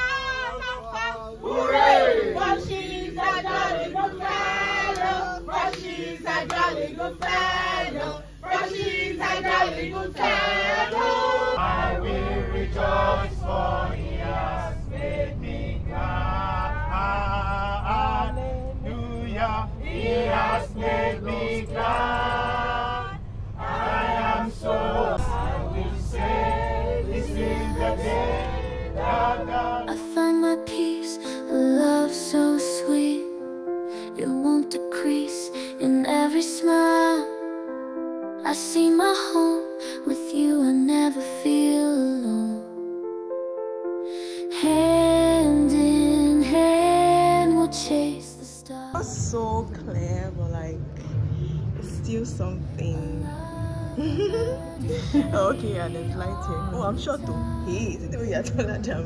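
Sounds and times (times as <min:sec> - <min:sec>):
low steady hum: 0:00.0 - 0:30.9, 0:44.6 - 0:59.0
choir singing: 0:00.0 - 0:33.3, 0:44.5 - 0:49.0, 0:53.2 - 0:57.9
music: 0:01.0 - 0:59.0.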